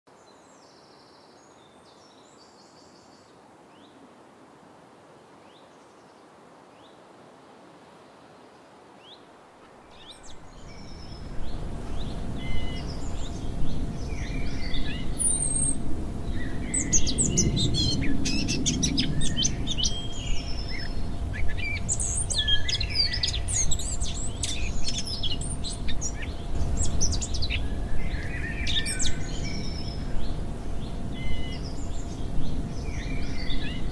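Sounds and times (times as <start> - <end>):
faint steady hum: 0.1 - 33.9
birds chirping and twittering: 9.8 - 33.9
low rumble: 10.4 - 33.9.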